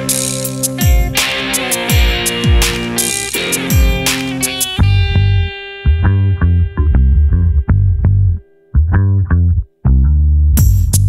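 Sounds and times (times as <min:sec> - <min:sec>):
bass guitar and guitar playing: 0:00.0 - 0:11.0.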